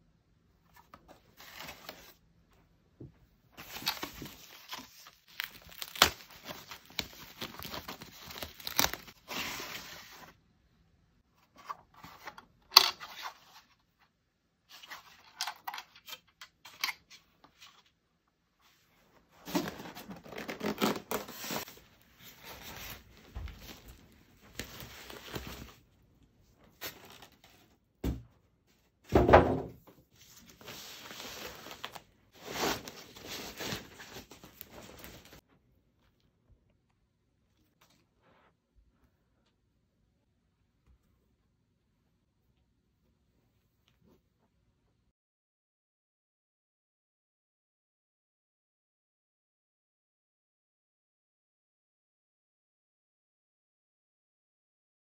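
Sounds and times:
plastic packaging rustling and tearing: 3.6 - 10.2, 19.4 - 25.8, 30.5 - 35.4.

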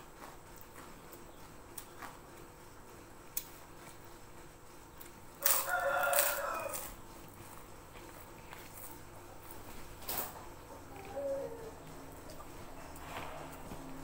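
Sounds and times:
rooster crowing: 5.4 - 7.0.

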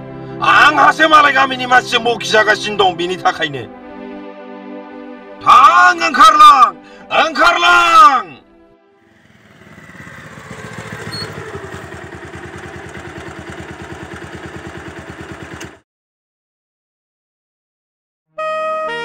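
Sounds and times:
motorcycle engine: 9.0 - 15.8.

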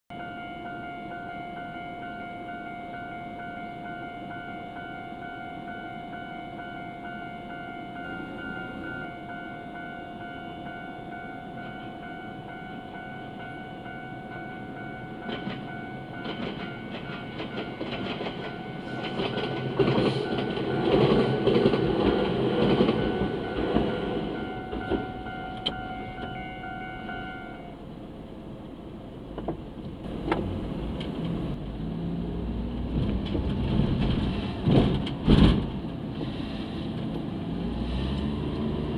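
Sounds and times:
level-crossing warning bell: 0.1 - 27.9
train wheels rumbling and clacking: 15.1 - 26.4, 32.8 - 38.9.

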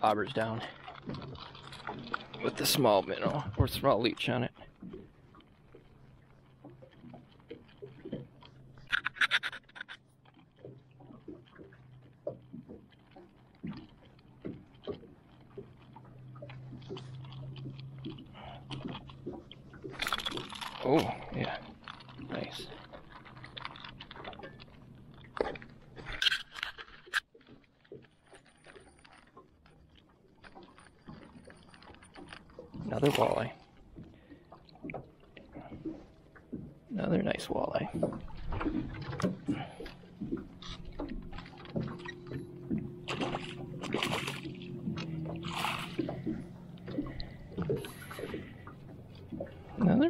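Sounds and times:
fish splashing in a net: 38.0 - 48.7.

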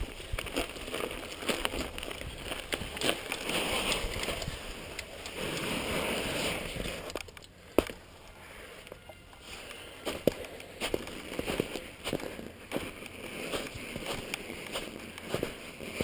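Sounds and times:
bike tyres crunching through snow: 0.0 - 7.1, 9.4 - 16.0
bike clicks and rattles: 0.0 - 8.1, 10.1 - 11.8.

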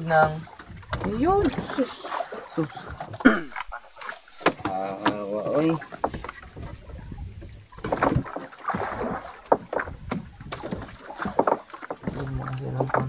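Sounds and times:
knocks and clatter on wooden boat: 0.0 - 13.0.

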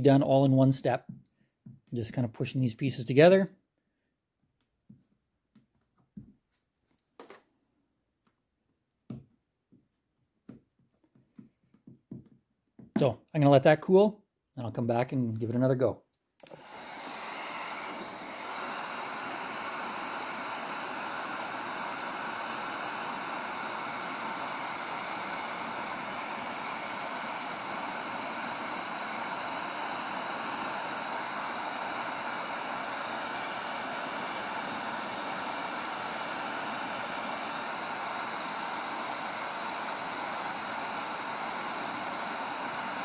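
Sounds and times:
heat gun blowing air: 16.4 - 43.0.

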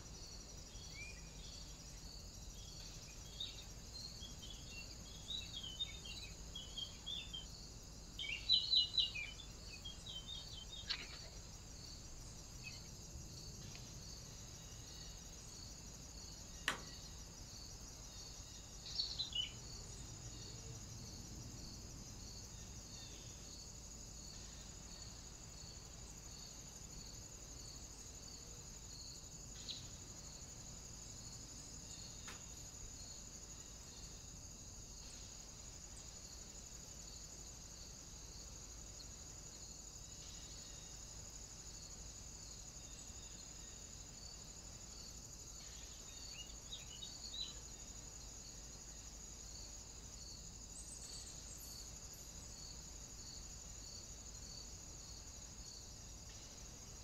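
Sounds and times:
crickets chirping: 0.0 - 57.0
small birds chirping: 2.6 - 7.5, 8.2 - 11.9, 18.7 - 19.8.

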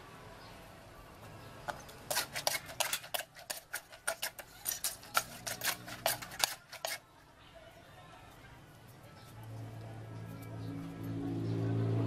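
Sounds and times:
pestle pounding in clay mortar: 1.7 - 7.0.

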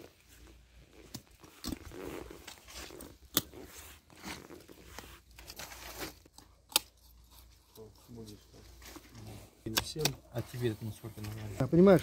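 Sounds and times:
knife crunching cartilage: 2.9 - 3.6, 6.3 - 7.5.

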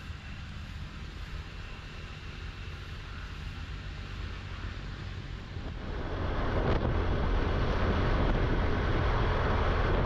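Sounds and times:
wind rushing over microphone: 0.0 - 10.0.

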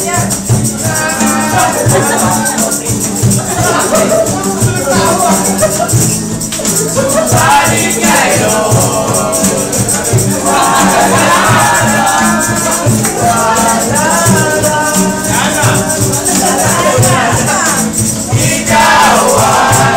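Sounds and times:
acoustic guitars strumming: 0.0 - 19.9
cajon beat: 0.0 - 19.9
group of voices singing: 0.0 - 19.9.

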